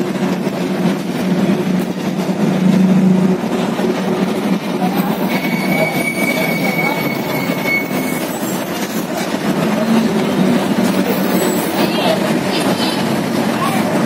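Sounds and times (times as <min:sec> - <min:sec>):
vehicle road noise rumble: 0:00.0 - 0:05.5.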